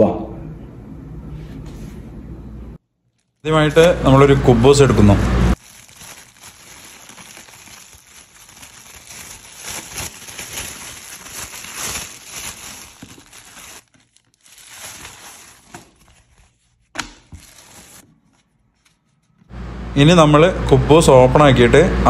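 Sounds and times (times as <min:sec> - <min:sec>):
plastic bag rustling: 0:05.5 - 0:19.3.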